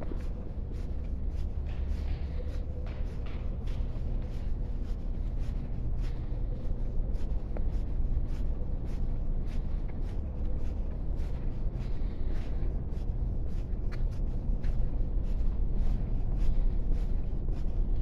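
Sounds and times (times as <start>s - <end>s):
footsteps walking: 0.0s - 18.0s
low background rumble: 0.0s - 18.0s.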